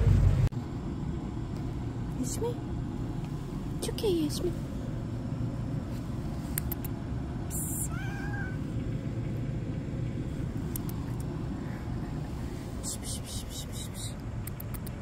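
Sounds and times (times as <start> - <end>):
low rumble: 0.0 - 15.0
cat meowing: 7.6 - 8.7.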